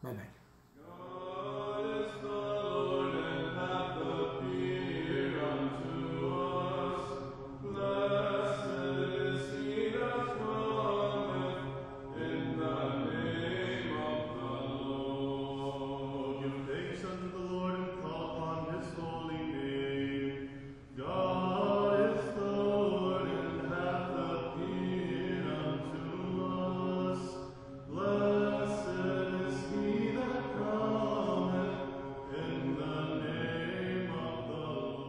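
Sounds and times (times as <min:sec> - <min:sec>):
voices chanting: 0:00.0 - 0:35.0.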